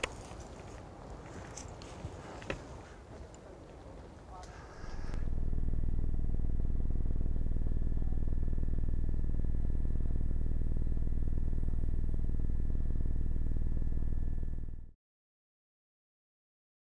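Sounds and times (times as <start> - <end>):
aircraft engines droning: 0.0 - 14.7
faint high whine: 4.4 - 15.0.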